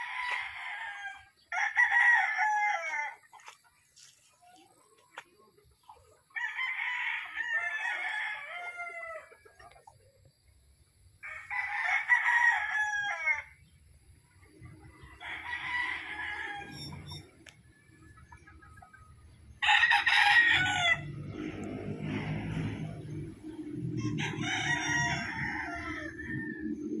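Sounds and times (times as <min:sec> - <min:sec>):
rooster crowing: 0:00.0 - 0:03.2, 0:06.4 - 0:09.3, 0:11.2 - 0:13.5, 0:15.2 - 0:17.2, 0:19.6 - 0:23.2, 0:23.8 - 0:27.0.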